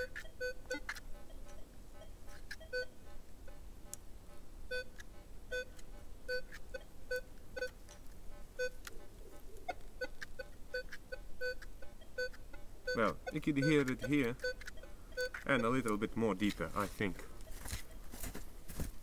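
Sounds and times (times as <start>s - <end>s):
metal detector beeping: 0.0s - 3.6s, 9.7s - 16.5s.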